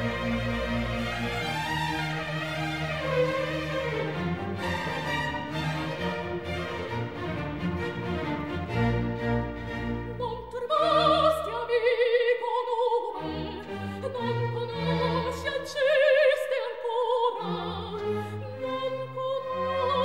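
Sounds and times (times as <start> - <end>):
string orchestra: 0.0 - 20.0
soprano singing opera: 10.0 - 20.0.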